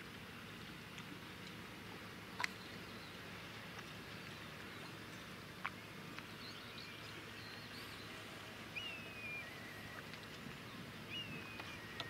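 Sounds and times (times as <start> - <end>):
whistled bird calls: 6.3 - 12.0.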